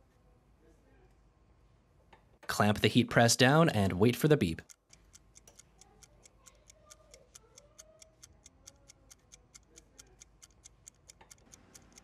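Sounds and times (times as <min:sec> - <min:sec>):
fast clock ticking: 0:04.2 - 0:12.0.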